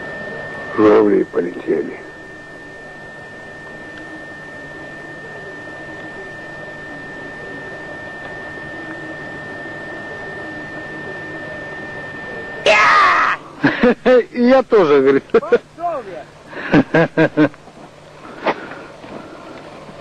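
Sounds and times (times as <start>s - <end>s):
faint wavering tones: 0.0s - 20.0s
thin high whine: 0.0s - 20.0s.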